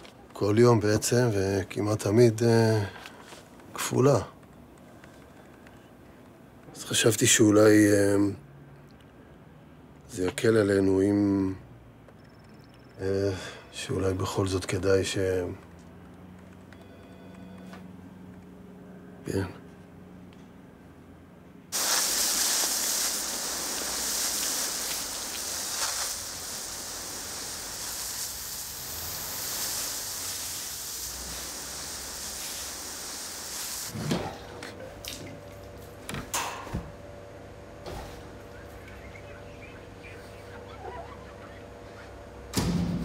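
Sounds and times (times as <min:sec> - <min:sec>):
faint steady hum: 0:00.0 - 0:43.0
water gushing hard: 0:21.8 - 0:34.0.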